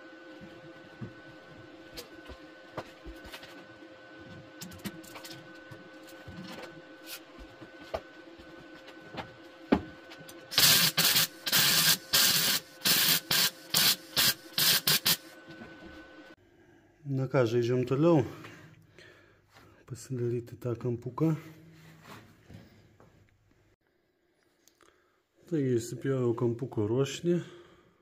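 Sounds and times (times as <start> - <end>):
welder bursts on sheet steel: 10.5 - 15.3.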